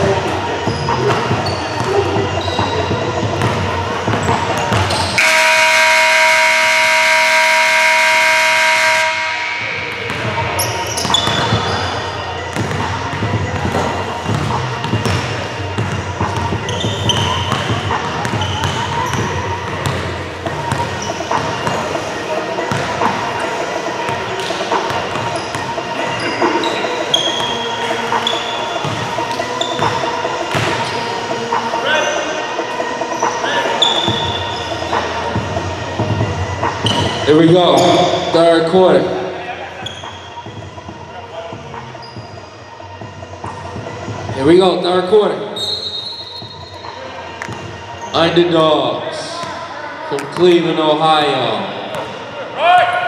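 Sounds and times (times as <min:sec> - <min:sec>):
sneakers squeaking: 0:00.0 - 0:05.2, 0:09.7 - 0:38.3, 0:39.1 - 0:44.3, 0:45.4 - 0:48.4, 0:51.3 - 0:52.5
murmur of gym noise: 0:00.0 - 0:53.0
basketball bouncing: 0:00.7 - 0:05.2, 0:09.9 - 0:11.8, 0:12.5 - 0:22.0, 0:22.6 - 0:23.4, 0:28.8 - 0:30.9
scoreboard horn blast: 0:05.2 - 0:10.2.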